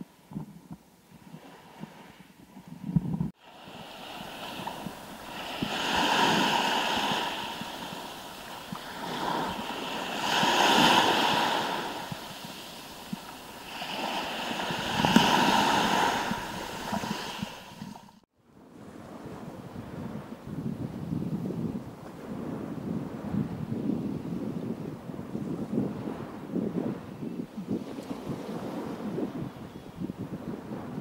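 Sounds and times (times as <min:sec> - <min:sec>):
small waves breaking on pebbles: 0:03.5 - 0:18.0.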